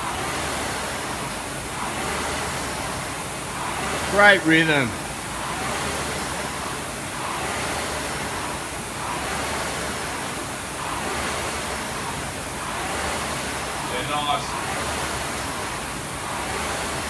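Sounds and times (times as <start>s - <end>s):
rowing machine flywheel whooshing: 0.0s - 17.0s.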